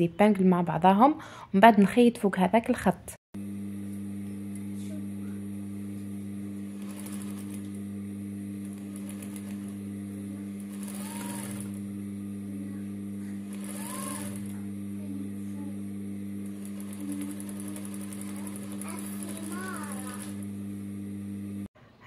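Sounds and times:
sewing machine motor hum: 3.4s - 21.7s
fast machine stitching: 6.2s - 12.1s, 13.0s - 15.2s, 16.3s - 20.9s.

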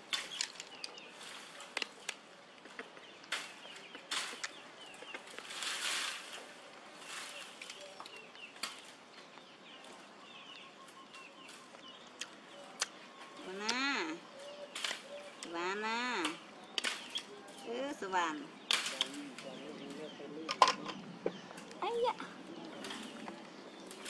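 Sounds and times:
rustle: 0.0s - 12.0s.

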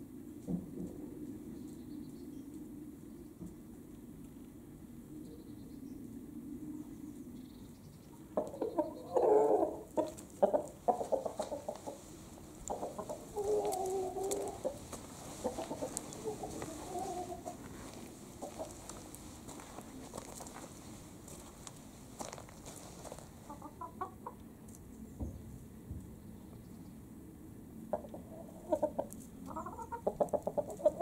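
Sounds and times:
chickens clucking: 8.2s - 20.6s, 22.2s - 24.8s, 27.9s - 31.0s.

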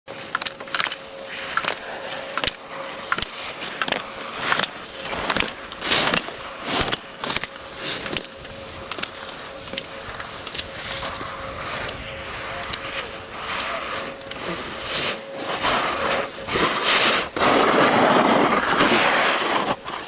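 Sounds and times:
snowboard scraping on hard snow: 14.4s - 20.0s.

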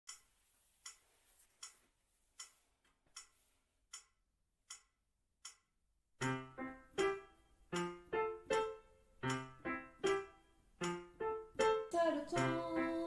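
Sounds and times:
clock ticking: 0.1s - 1.8s, 2.4s - 12.6s
piano: 6.2s - 13.0s.

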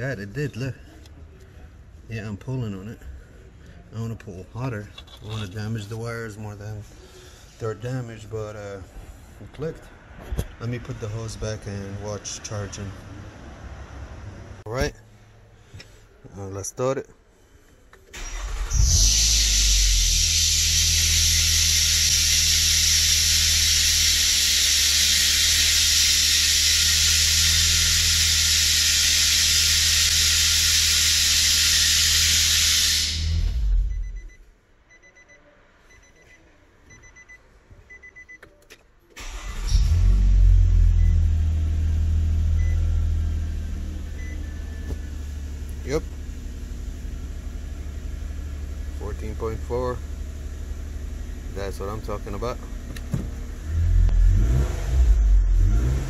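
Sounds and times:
loud steady hiss: 19.2s - 33.6s
faint repeating beep: 33.8s - 38.5s
car engine idling: 39.2s - 54.3s.

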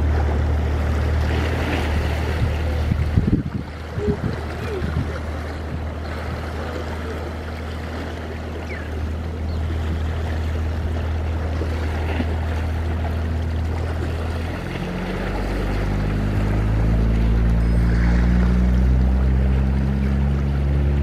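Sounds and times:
water slapping against rocks: 0.0s - 21.0s.

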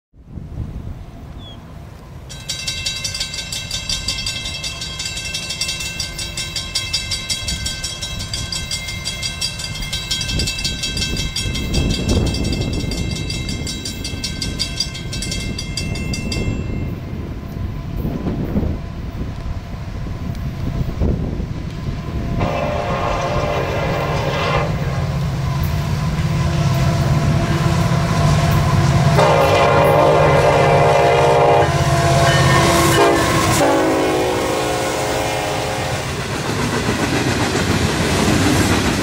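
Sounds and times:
freight train rumble: 0.2s - 39.0s
crossing bell ringing rapidly: 2.3s - 17.4s, 25.6s - 37.0s
wind on microphone: 9.7s - 39.0s.

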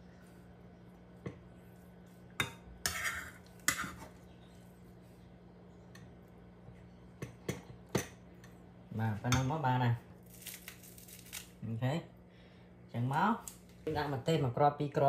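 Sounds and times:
utensils scraping a wok: 2.8s - 4.1s.

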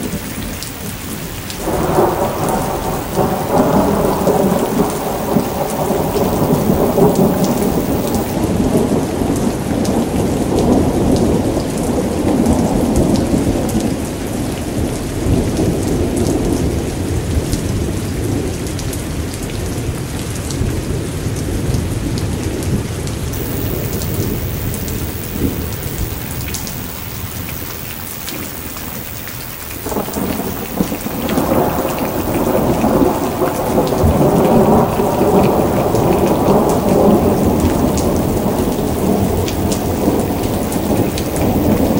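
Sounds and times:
rolling thunder: 0.0s - 11.5s, 23.4s - 41.9s
steady rain: 0.0s - 41.9s.

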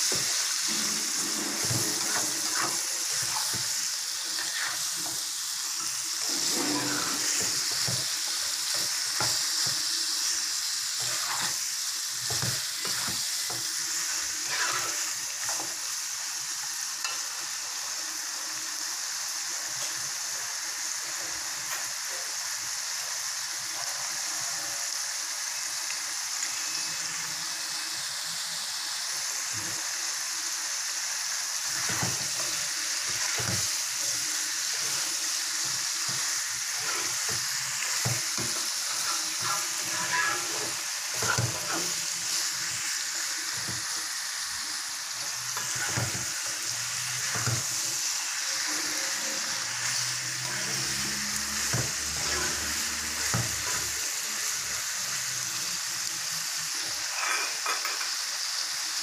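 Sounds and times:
food sizzling in hot oil: 0.0s - 59.0s
ladle scraping a pan: 0.1s - 5.2s, 6.2s - 8.1s, 14.4s - 15.2s, 31.8s - 42.8s, 45.6s - 46.4s, 57.1s - 58.0s.

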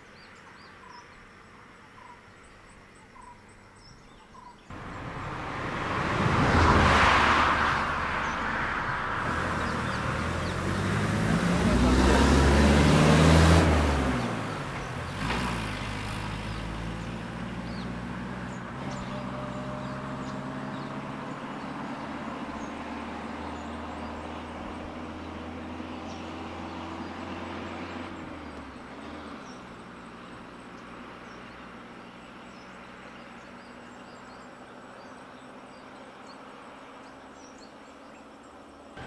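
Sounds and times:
insects calling: 0.0s - 5.1s
birds calling: 0.0s - 39.0s
vehicle engines idling: 0.0s - 39.0s.

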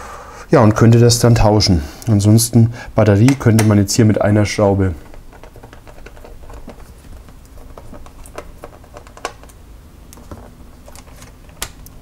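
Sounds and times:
hands handling plastic laptop parts: 5.0s - 12.0s.

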